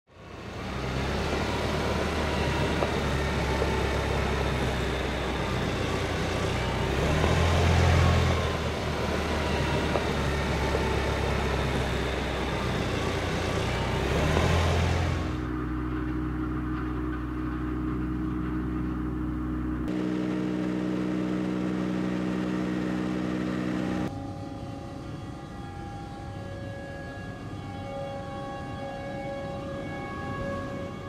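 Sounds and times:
low mechanical rumble: 0.4s - 24.1s.

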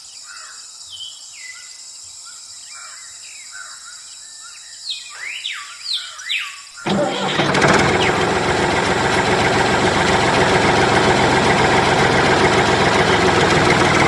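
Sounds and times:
tractor engine idling: 6.9s - 14.0s.

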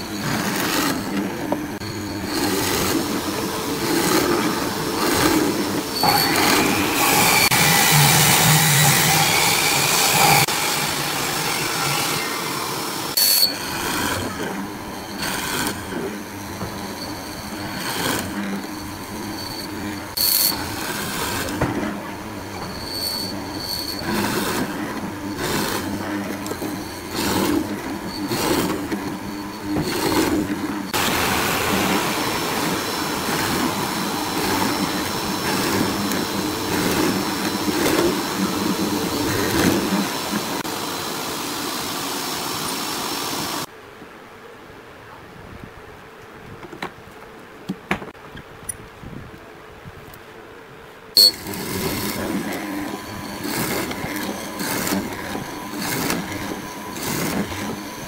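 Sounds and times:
mortising machine cutting wood: 0.0s - 41.2s, 51.2s - 58.0s
short high squeaks: 5.9s - 7.6s, 13.2s - 20.7s, 22.4s - 31.0s, 51.2s - 58.0s.

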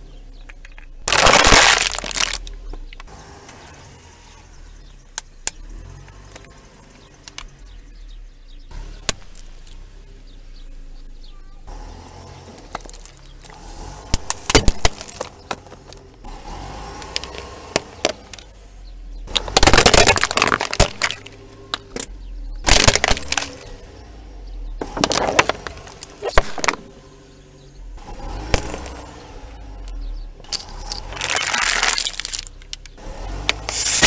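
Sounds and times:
low engine hum: 0.0s - 34.0s
plastic cracking under car tyre: 0.5s - 3.1s, 12.5s - 16.2s, 17.0s - 18.5s, 19.3s - 23.8s, 24.8s - 26.9s, 29.9s - 34.0s.

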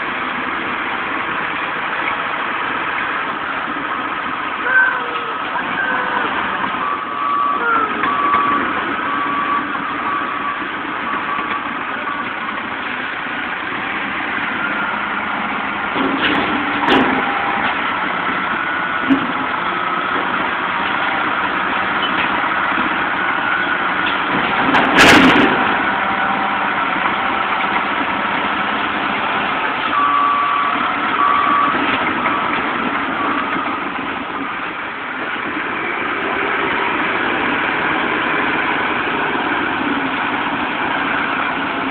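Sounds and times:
heavy diesel machinery running: 0.0s - 41.9s
high reversing beeps: 5.6s - 12.3s, 29.9s - 32.6s
loud clunk: 15.9s - 17.8s, 24.0s - 25.7s.

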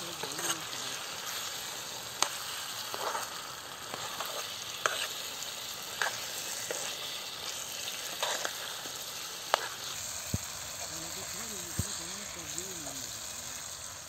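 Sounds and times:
stew sizzling in a metal pan: 0.0s - 14.0s
metal spoon scraping and clinking: 0.2s - 0.8s, 3.9s - 5.3s.

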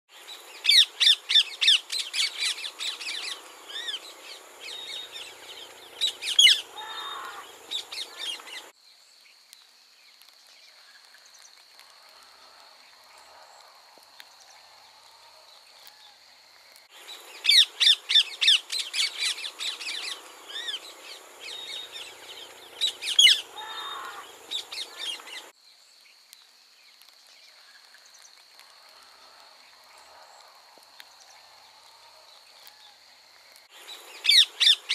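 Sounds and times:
parakeets screeching: 6.0s - 8.7s, 22.8s - 25.3s.

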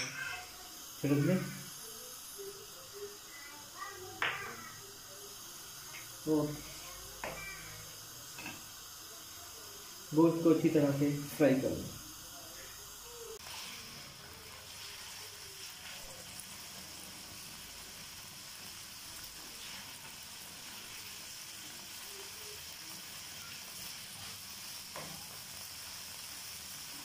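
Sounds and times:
chicken sizzling in oil: 0.0s - 27.0s
spoon scraping a wok: 8.3s - 8.7s.

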